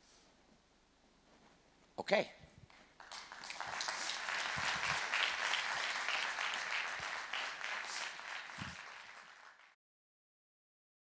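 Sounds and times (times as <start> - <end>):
audience applauding: 2.7 - 9.8.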